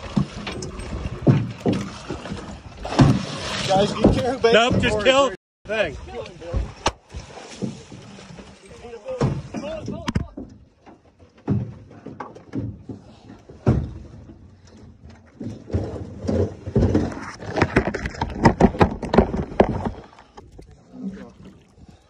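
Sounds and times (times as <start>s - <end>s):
sharp knocks and thumps: 0.0s - 5.3s, 9.1s - 20.6s.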